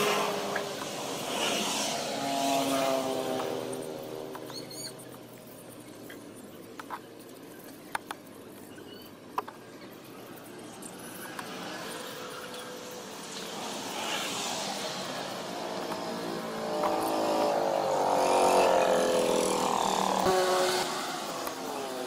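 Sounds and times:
vehicle engine passing by: 0.0 - 4.5, 10.9 - 22.0.

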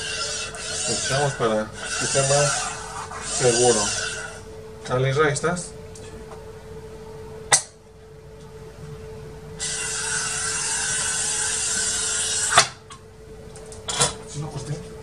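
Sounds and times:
glass cutter scoring glass: 0.0 - 4.4, 9.6 - 12.8.

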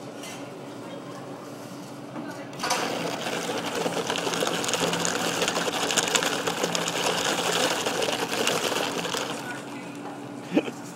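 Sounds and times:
blowing bubbles through a straw: 2.9 - 9.5.

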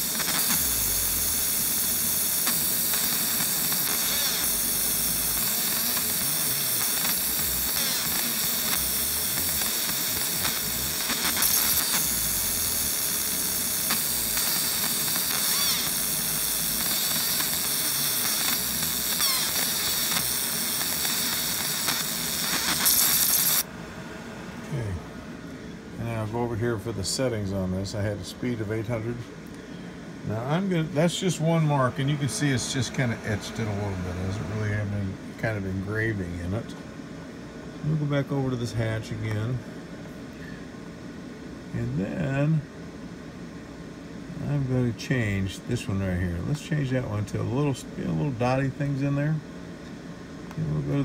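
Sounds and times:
laser engraver high-pitched hiss: 0.0 - 23.7, 30.3 - 35.2.

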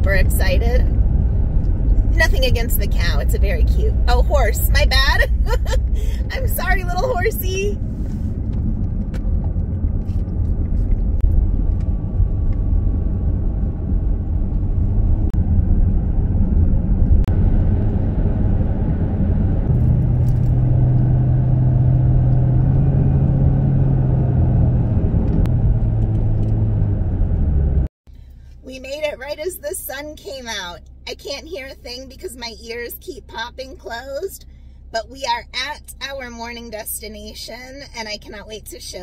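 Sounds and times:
steady low drone: 0.0 - 28.5
engine and tyre rumble: 0.0 - 39.0.

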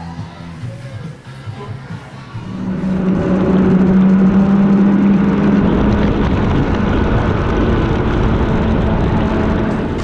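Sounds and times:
snowmobile engine running: 2.4 - 10.0.

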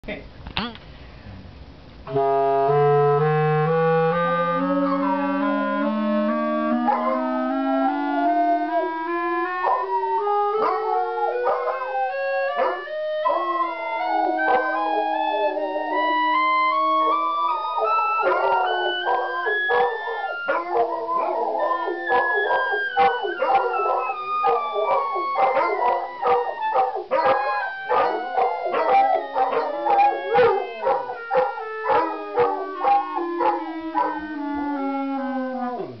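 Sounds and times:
clarinet playing a scale: 2.1 - 36.0
dogs howling: 4.6 - 36.0
dogs baying and yipping: 6.8 - 7.5, 9.6 - 10.0, 10.6 - 34.3.

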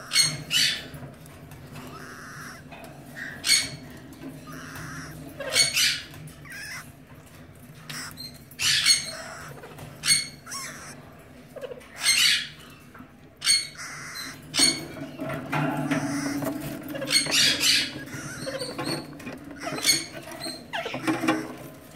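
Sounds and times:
parakeets squawking: 0.0 - 21.9.

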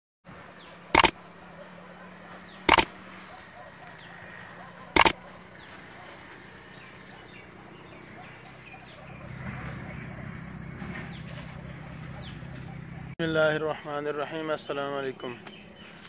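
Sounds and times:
faint outdoor background: 0.3 - 16.0
mouse click sound effects: 2.7 - 2.9, 5.0 - 5.2.

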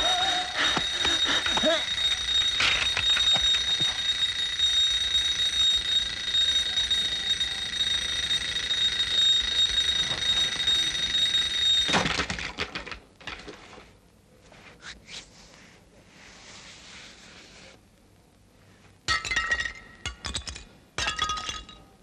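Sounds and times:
alarm clock ringing: 0.0 - 12.0.

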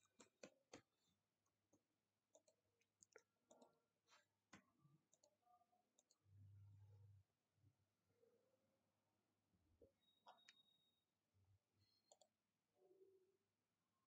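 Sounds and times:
keyboard typing: 0.0 - 0.9, 1.6 - 3.9, 12.0 - 12.4.

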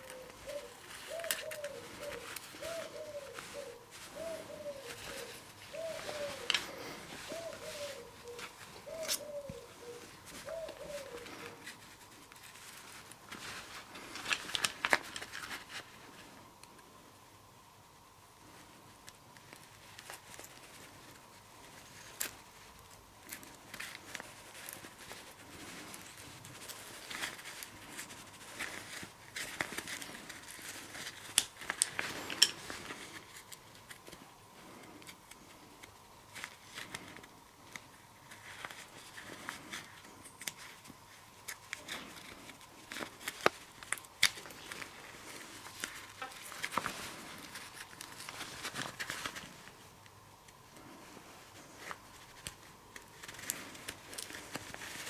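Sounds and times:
glove and cloth rustling: 0.0 - 16.4, 18.5 - 55.0.

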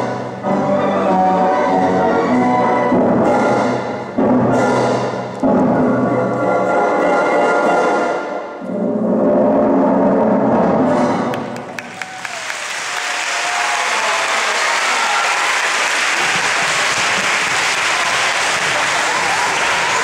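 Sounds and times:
audience applauding: 11.3 - 20.0.

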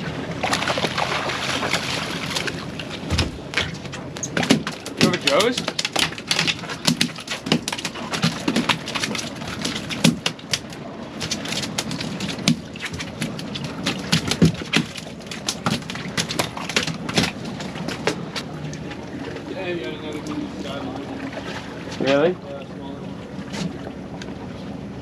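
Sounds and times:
steady background noise: 0.0 - 25.0
clatter of sharp knocks and clicks: 3.1 - 18.2.

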